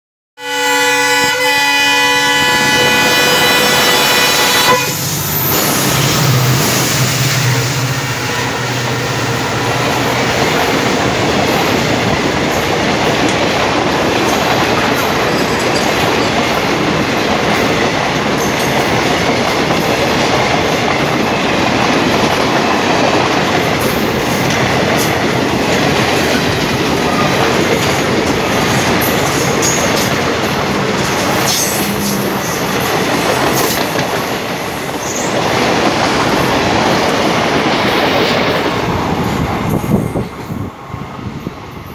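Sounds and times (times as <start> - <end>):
high wheel squeals: 2.6 - 7.9
train wheels clattering on rails: 8.8 - 40.8.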